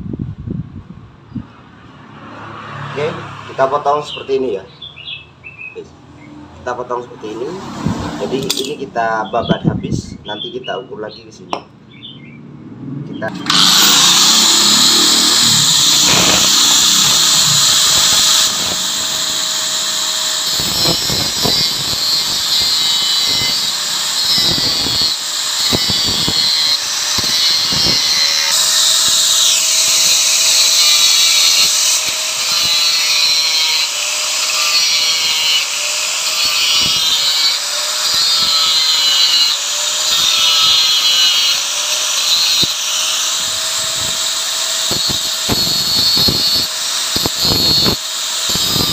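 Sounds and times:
angle grinder grinding metal: 0:07.0 - 0:09.2, 0:13.2 - 0:48.9.

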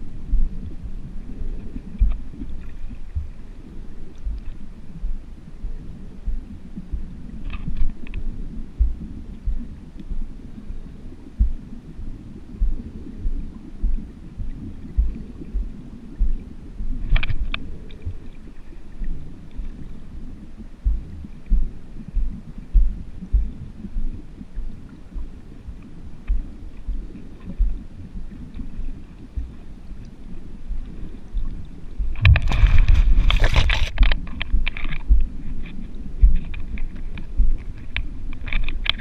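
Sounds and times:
water thudding against camera case: 0:17.1 - 0:18.2, 0:32.1 - 0:39.0.

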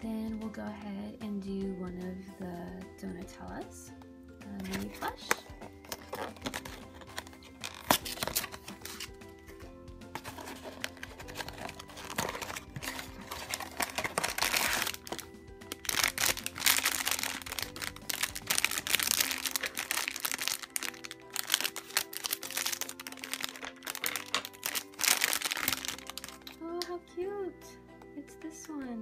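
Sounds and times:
background music: 0:00.0 - 0:29.0
cardboard flap rustling: 0:04.6 - 0:15.2, 0:15.8 - 0:26.4
foil bag crinkling: 0:04.7 - 0:09.1, 0:10.2 - 0:26.6.

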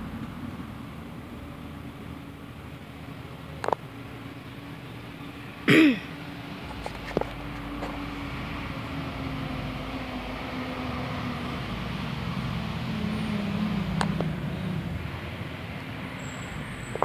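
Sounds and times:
vehicle engine hum: 0:00.0 - 0:17.0
person coughing: 0:05.7 - 0:06.1.

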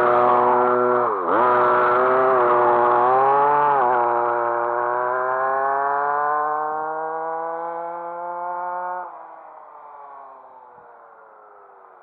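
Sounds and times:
small two-stroke engine revving: 0:00.0 - 0:09.1.

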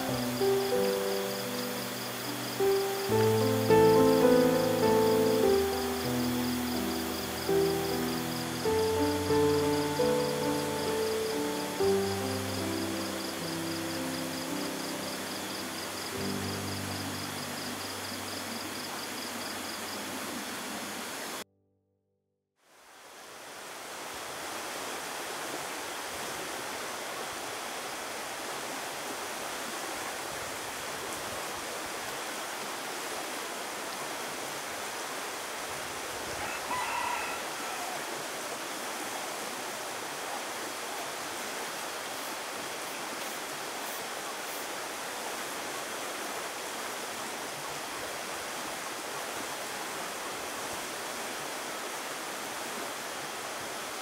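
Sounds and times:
rushing flowing water: 0:00.0 - 0:21.4, 0:22.7 - 0:54.0
rooster crow: 0:36.3 - 0:38.5.

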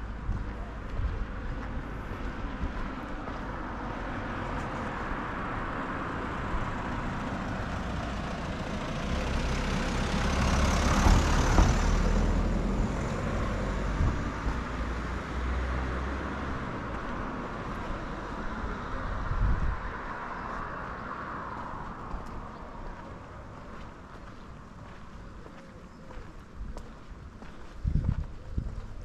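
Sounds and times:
car driving past: 0:01.9 - 0:24.5.

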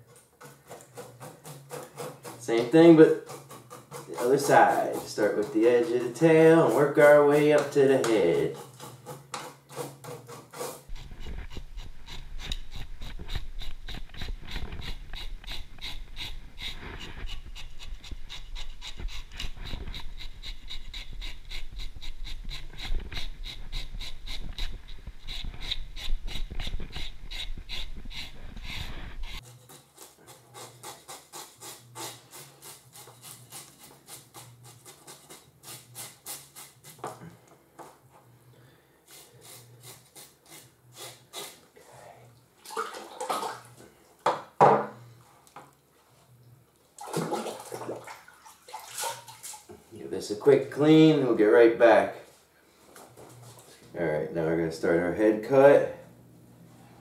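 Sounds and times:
knife scraping fish scales: 0:00.1 - 0:37.0, 0:39.1 - 0:41.6.

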